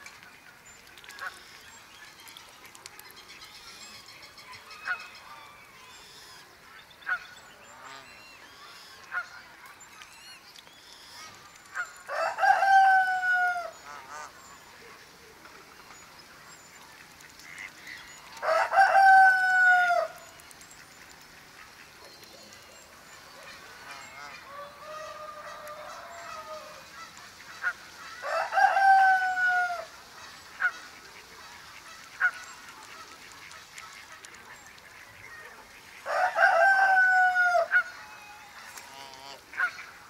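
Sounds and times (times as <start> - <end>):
small birds twittering: 0.1 - 40.0
fowl calling: 23.2 - 34.2, 34.8 - 40.0.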